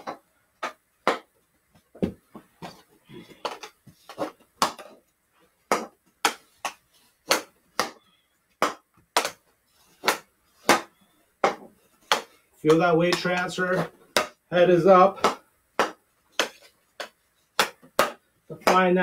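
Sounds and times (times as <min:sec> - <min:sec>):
hockey stick clacking on ball: 0:03.4 - 0:05.0, 0:08.6 - 0:14.4, 0:15.2 - 0:19.0.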